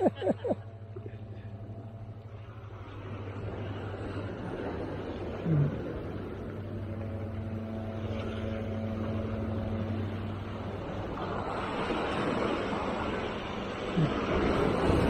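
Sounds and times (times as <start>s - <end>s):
low engine hum: 0.0s - 15.0s
waves breaking against rocks: 10.7s - 15.0s.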